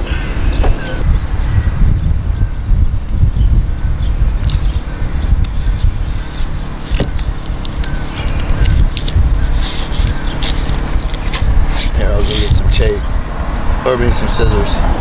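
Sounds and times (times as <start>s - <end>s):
low engine drone: 0.0s - 14.1s
sealing tape crinkling as peeled: 4.4s - 4.8s, 5.4s - 12.6s.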